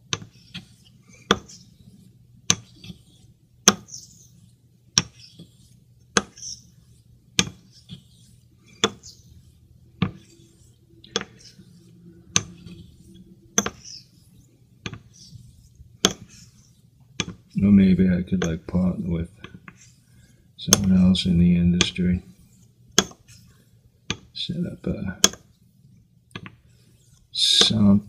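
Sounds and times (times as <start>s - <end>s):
steel scraping across stone: 5.1s - 14.5s.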